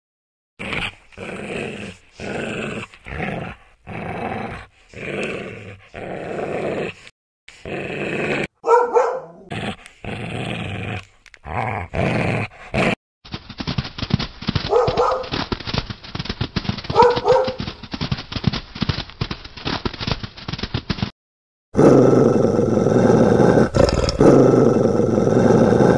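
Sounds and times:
dog growling: 0.6 - 8.6, 9.2 - 13.0, 21.8 - 25.9
dog yelping: 8.6 - 9.5, 14.7 - 15.3, 17.0 - 17.6.

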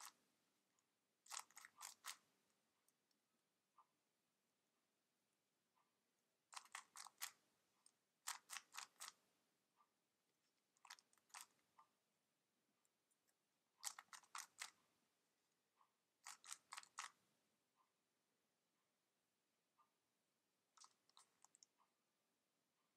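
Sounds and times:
speed cube clicking turns: 1.3 - 2.2, 6.5 - 7.4, 8.2 - 9.2, 13.8 - 14.8, 16.2 - 17.2.

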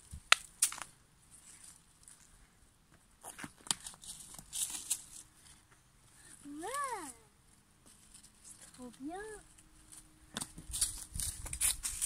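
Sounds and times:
leaves crackling and rustling: 0.0 - 2.3, 3.2 - 12.0
plant stems snapping: 0.3 - 0.9.

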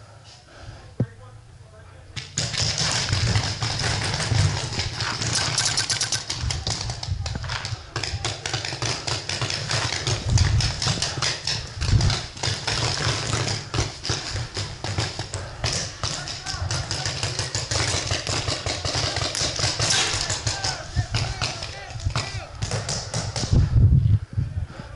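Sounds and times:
paintball gun firing: 2.2 - 6.6, 8.0 - 21.6.

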